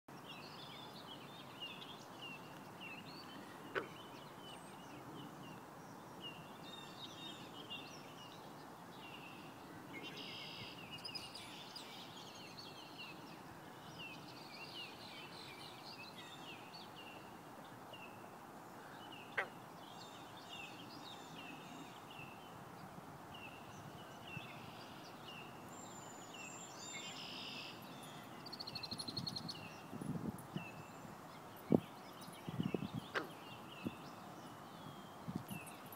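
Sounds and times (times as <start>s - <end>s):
faint background hiss: 0.1s - 35.9s
birds chirping and singing: 23.4s - 35.9s.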